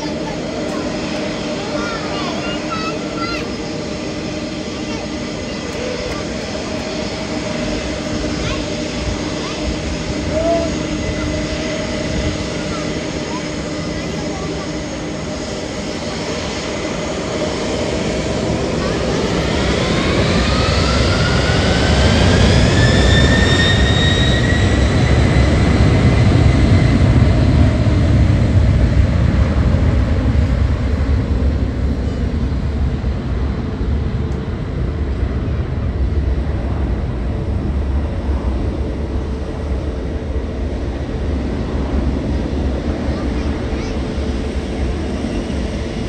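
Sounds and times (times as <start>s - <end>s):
jet engine rumble: 0.0s - 46.0s
jet engine whine: 0.0s - 46.0s.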